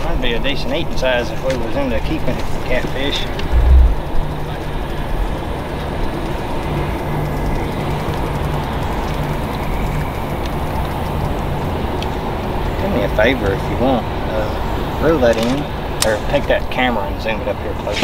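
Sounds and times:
rumble of distant vehicles: 0:00.0 - 0:18.0
low hum: 0:03.3 - 0:05.3.

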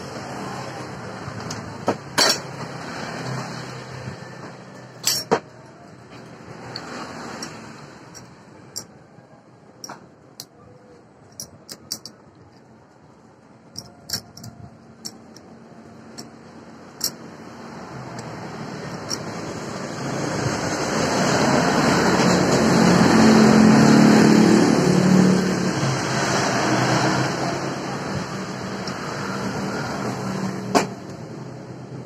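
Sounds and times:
steel parts clinking against metal: 0:01.4 - 0:02.6, 0:04.7 - 0:09.0, 0:09.8 - 0:12.7, 0:13.6 - 0:17.3, 0:18.1 - 0:19.6.

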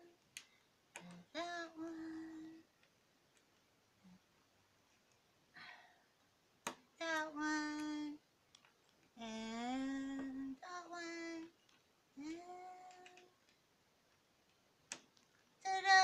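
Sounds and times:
woman singing long held notes: 0:01.0 - 0:02.7, 0:07.0 - 0:08.2, 0:09.2 - 0:11.6, 0:12.2 - 0:13.4, 0:15.6 - 0:16.0.

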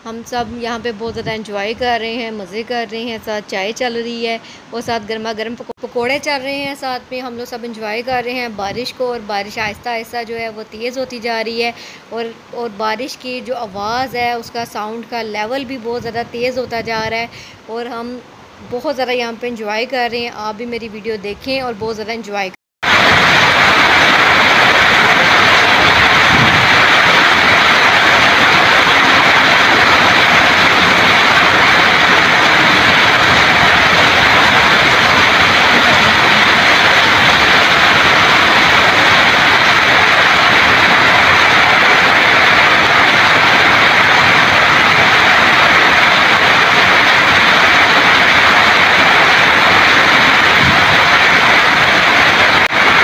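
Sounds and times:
heavy rain on foliage and paving: 0:22.8 - 0:53.0.

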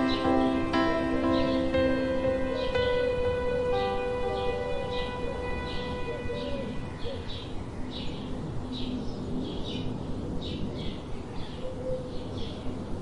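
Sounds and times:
bird chirps: 0:00.0 - 0:03.1.

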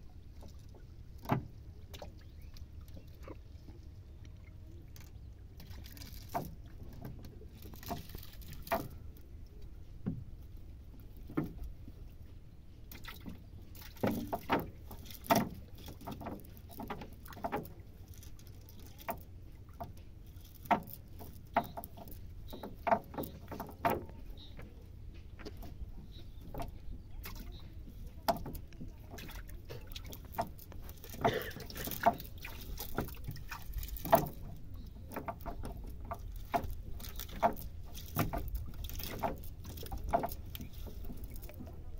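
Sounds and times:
taps and rustles of net: 0:05.6 - 0:09.0, 0:12.9 - 0:24.2, 0:28.3 - 0:41.6.

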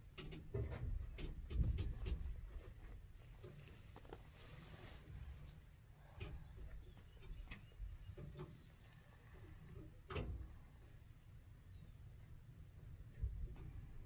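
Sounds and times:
faint clicks and knocks: 0:00.0 - 0:04.4, 0:06.0 - 0:11.4.

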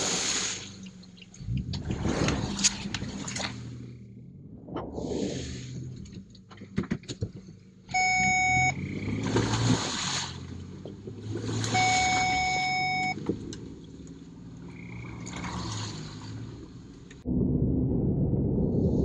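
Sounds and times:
car engine revving: 0:00.0 - 0:17.3
car horn: 0:07.9 - 0:08.9, 0:11.7 - 0:13.2.

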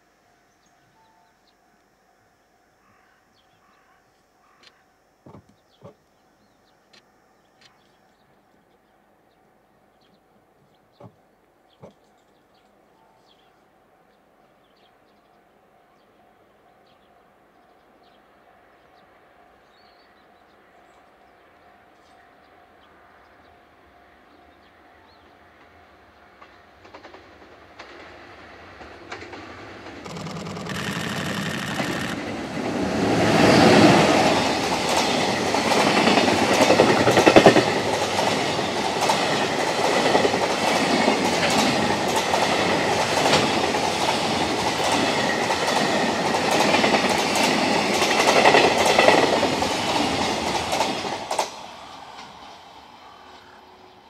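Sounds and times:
freight train passing: 0:15.5 - 0:54.0
wheel clicks over rail joints: 0:29.1 - 0:32.4.

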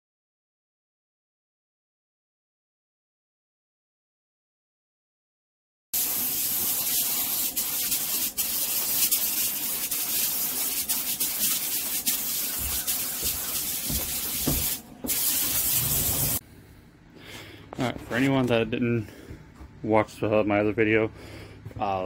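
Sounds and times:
spray gun hissing: 0:06.0 - 0:16.4.

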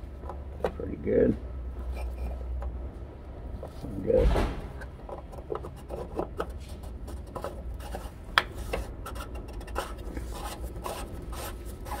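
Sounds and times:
gloved hand scraping plastic cap: 0:05.1 - 0:12.0.

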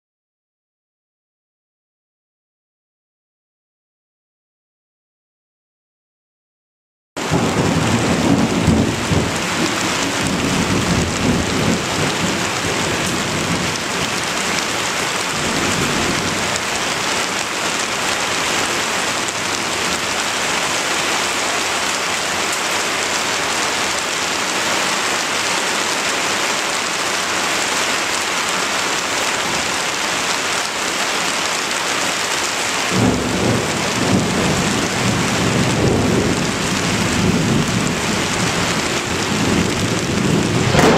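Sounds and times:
low thunder rumbling: 0:07.2 - 0:20.4, 0:32.9 - 0:40.9
heavy rain pouring: 0:07.2 - 0:40.9.

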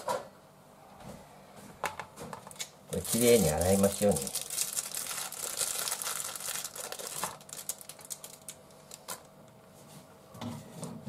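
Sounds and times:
plastic bag crinkling: 0:02.5 - 0:09.3.

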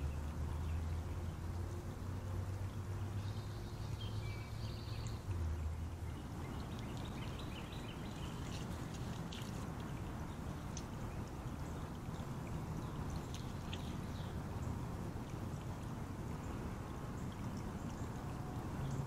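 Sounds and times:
creek water rushing over gravel: 0:00.0 - 0:19.0
low hum: 0:00.0 - 0:19.0
faint ticks: 0:10.6 - 0:14.0.

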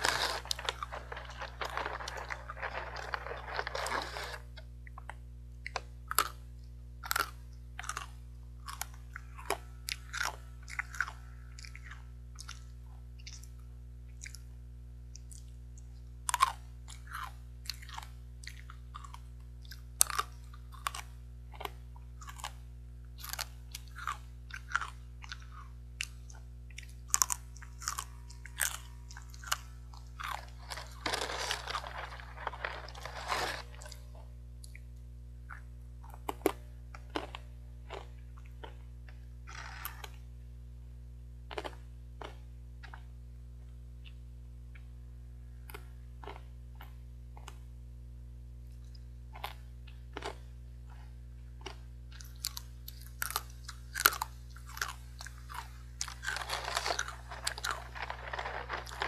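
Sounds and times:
foil snack bag crinkling: 0:00.0 - 0:04.5, 0:29.4 - 0:34.0, 0:53.0 - 0:59.0
crunchy snack chewing: 0:00.0 - 0:06.4, 0:07.0 - 0:14.5, 0:16.3 - 0:22.6, 0:23.2 - 0:34.9, 0:35.5 - 0:38.8, 0:39.5 - 0:40.2, 0:41.5 - 0:43.1, 0:48.8 - 0:59.0.

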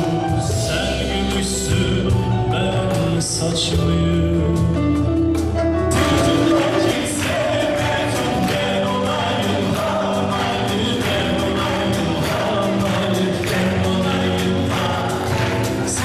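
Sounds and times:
man singing into microphone: 0:00.0 - 0:05.2, 0:05.9 - 0:16.0
guitars: 0:00.0 - 0:16.0
piano: 0:00.0 - 0:16.0
hand drum beat: 0:05.9 - 0:16.0.

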